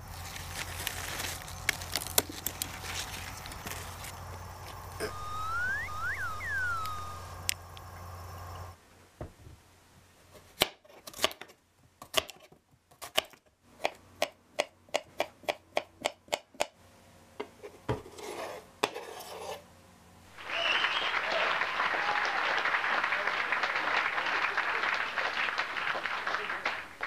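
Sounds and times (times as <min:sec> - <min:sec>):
steady hum: 0:00.0 - 0:08.8
synthesized tone sweeping: 0:05.0 - 0:07.5
pieces scraped across board: 0:17.6 - 0:19.7.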